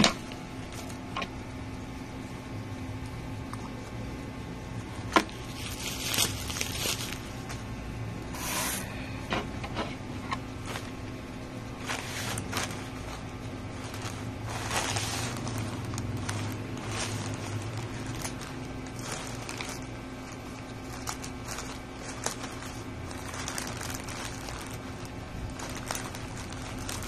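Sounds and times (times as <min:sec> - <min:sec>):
steady low hum: 0:00.0 - 0:27.0
plastic bag rustling: 0:00.6 - 0:01.1, 0:04.8 - 0:09.0, 0:10.1 - 0:27.0.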